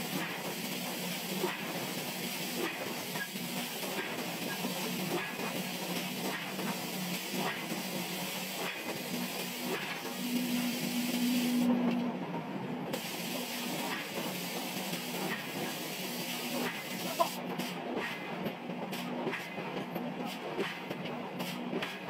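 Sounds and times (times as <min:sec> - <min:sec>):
machinery hiss: 0:00.0 - 0:11.7, 0:13.0 - 0:17.4
low machine hum: 0:08.9 - 0:21.8.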